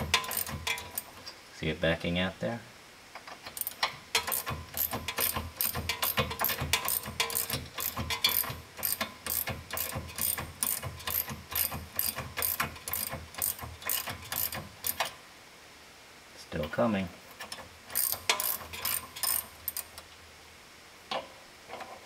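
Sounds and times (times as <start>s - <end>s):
ratchet wrench clicking: 0.0s - 1.1s, 3.5s - 15.1s, 17.4s - 20.0s.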